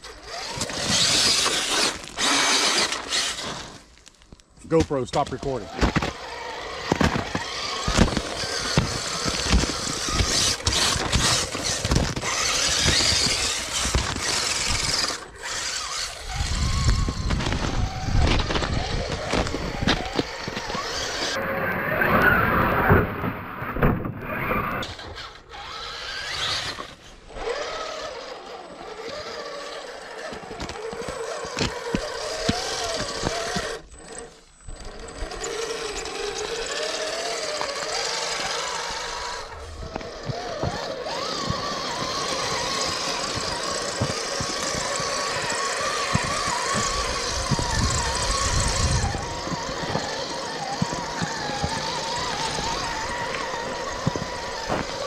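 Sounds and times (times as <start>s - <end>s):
electric motor and gears whining: 0.0s - 55.0s
tyres crunching on snow and ice: 0.1s - 23.4s, 24.3s - 55.0s.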